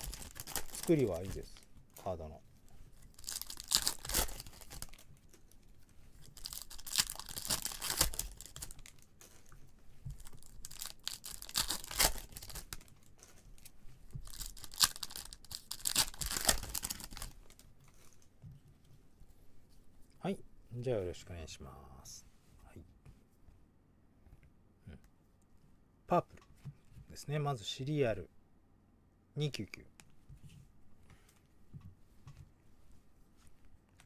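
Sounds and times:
foil wrapper tearing and crinkling: 0.0s - 1.6s, 3.1s - 5.1s, 6.2s - 9.5s, 10.2s - 13.0s, 13.6s - 17.6s.

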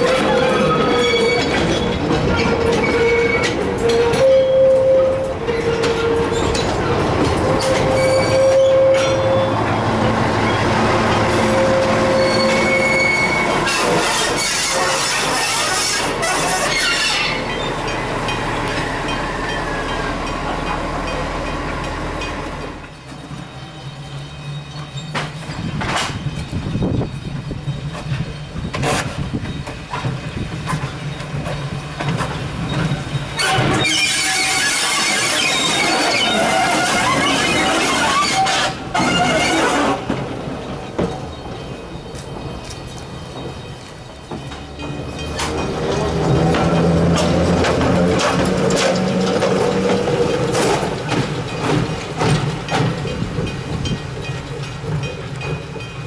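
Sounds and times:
train wheels squealing: 0.0s - 20.2s, 23.1s - 46.9s
wheels clattering over track: 42.0s - 56.0s.

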